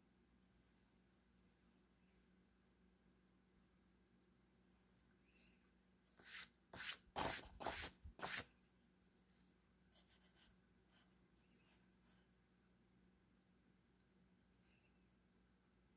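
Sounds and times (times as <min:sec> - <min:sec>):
pencil scratching on paper: 0:06.2 - 0:08.5, 0:09.9 - 0:12.3.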